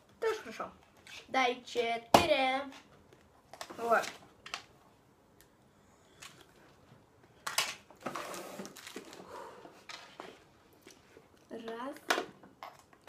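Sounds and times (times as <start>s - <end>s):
rustling and scraping: 6.2s - 11.3s.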